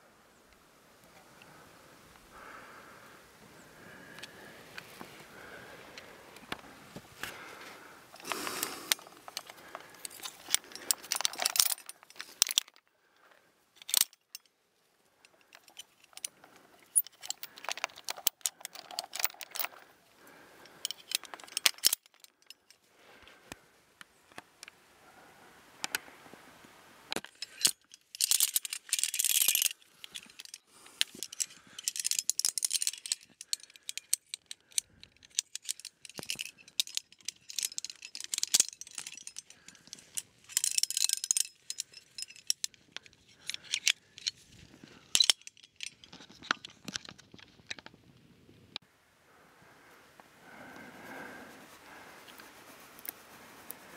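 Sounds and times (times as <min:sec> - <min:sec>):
carabiners clinking against chain: 0:08.1 - 0:12.9, 0:13.8 - 0:14.6, 0:15.2 - 0:22.8, 0:27.2 - 0:47.8.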